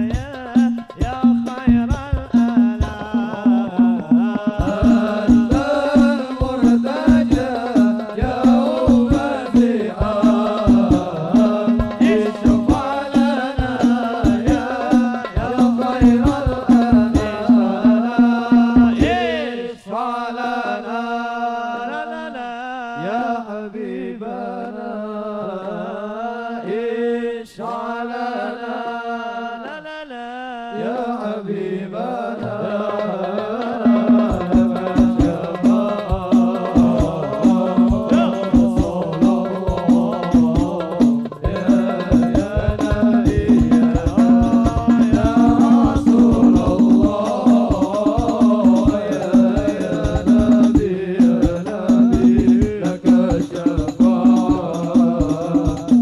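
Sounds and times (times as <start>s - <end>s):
frame drums beating: 0.0s - 19.4s, 32.7s - 56.0s
men singing into microphones: 0.0s - 56.0s.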